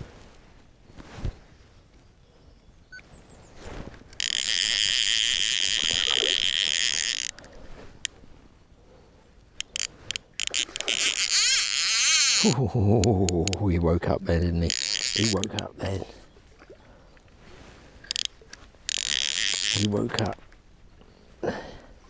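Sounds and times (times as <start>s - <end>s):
fishing reel drag buzzing: 4.2s - 8.1s, 9.6s - 12.6s, 14.7s - 15.6s, 18.0s - 20.4s.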